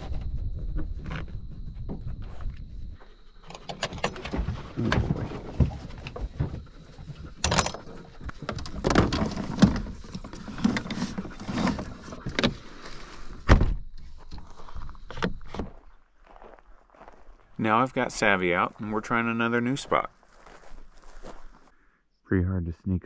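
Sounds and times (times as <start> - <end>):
metal doors latching and rattling: 3.4 - 6.1, 7.4 - 10.0.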